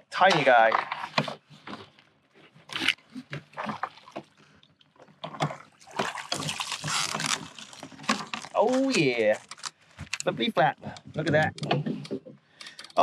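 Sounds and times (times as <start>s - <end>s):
fish splashing at water surface: 3.4s - 4.4s, 5.3s - 8.6s.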